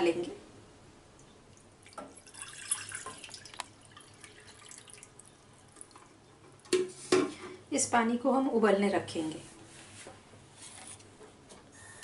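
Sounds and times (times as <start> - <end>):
water trickling and dripping: 1.2 - 6.2
water pouring into a metal saucepan: 1.8 - 6.0.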